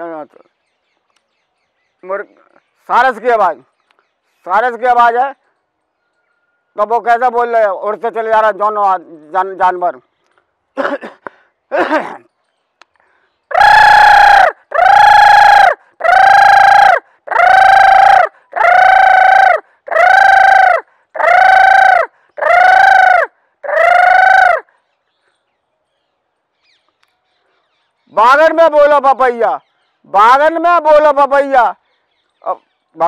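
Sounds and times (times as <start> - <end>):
man imitating crane calls: 13.5 - 24.7.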